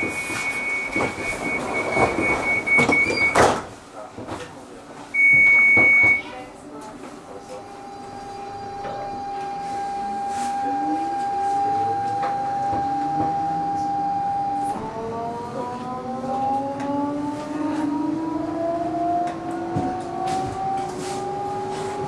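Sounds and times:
electric train drive whining: 7.6s - 22.0s.

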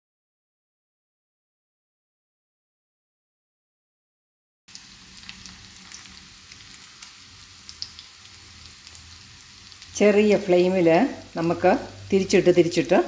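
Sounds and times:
food sizzling in oil: 4.7s - 13.0s.

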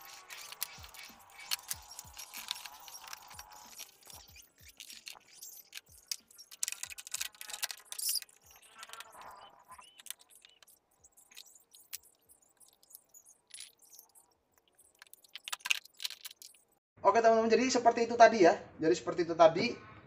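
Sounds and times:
tools clicking and jingling: 0.0s - 9.2s, 9.9s - 16.7s.

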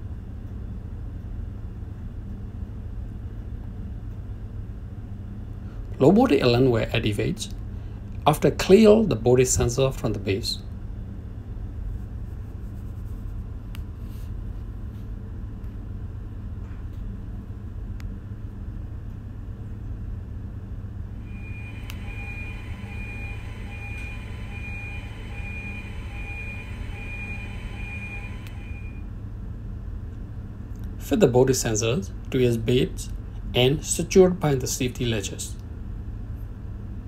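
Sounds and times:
machinery hum: 0.0s - 37.0s
alarm beeping: 21.2s - 29.1s.

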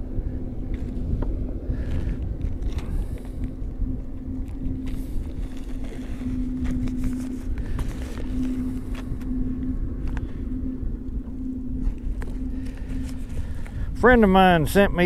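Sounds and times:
low rumble and hum: 0.0s - 15.0s
plastic bag and envelope rustling: 4.8s - 9.1s.

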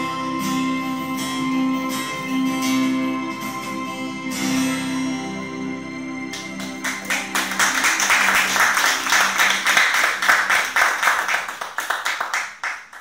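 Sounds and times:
audience clapping: 6.3s - 13.0s.

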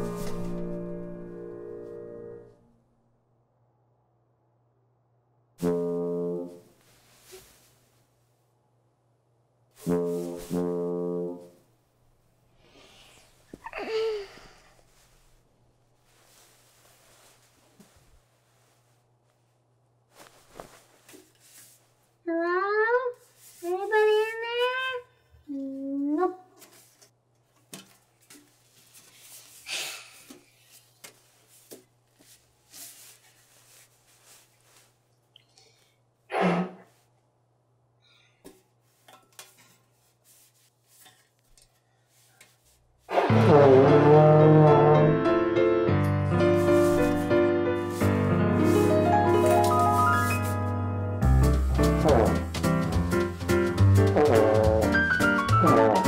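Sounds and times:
brass horn low blasts: 5.6s - 6.7s, 9.8s - 11.6s, 43.1s - 45.1s, 52.0s - 52.5s, 55.6s - 56.0s
soft breaths: 12.5s - 22.2s, 28.7s - 36.2s, 38.0s - 42.9s.

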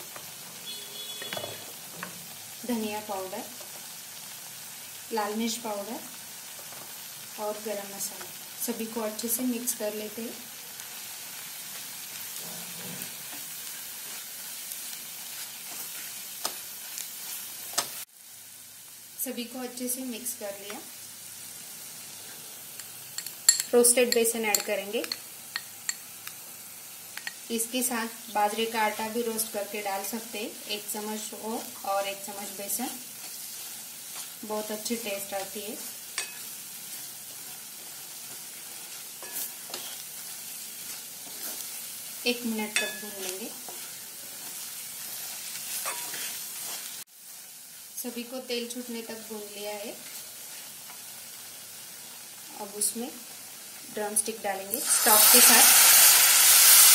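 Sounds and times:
spices sizzling in hot oil: 0.0s - 56.9s
wooden spatula stirring: 33.2s - 34.6s, 36.2s - 41.9s, 42.8s - 47.0s.

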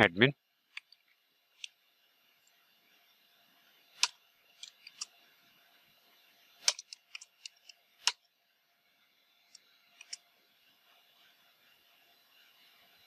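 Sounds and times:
keyboard keystrokes: 6.7s - 7.6s.

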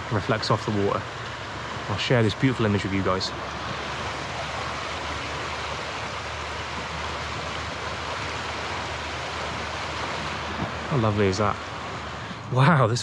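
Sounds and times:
brook rushing over rapids: 0.0s - 13.0s.

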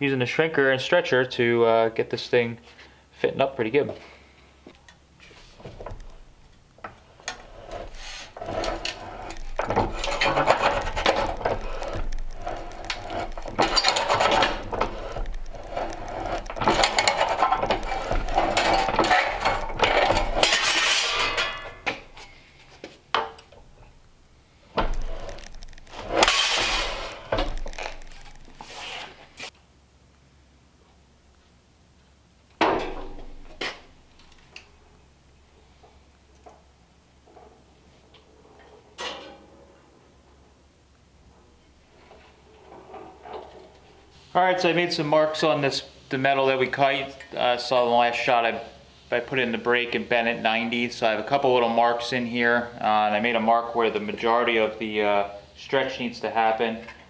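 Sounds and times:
sheet metal scraping and clanking: 5.4s - 22.6s, 24.8s - 29.5s, 41.3s - 44.2s
bench shear cutting sheet metal: 7.3s - 21.8s, 24.9s - 29.5s.

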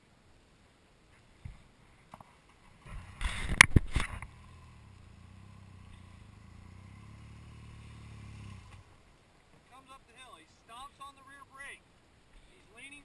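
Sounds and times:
scraping rustle on microphone: 1.1s - 4.3s
motorcycle engine climbing hill: 2.6s - 9.1s.

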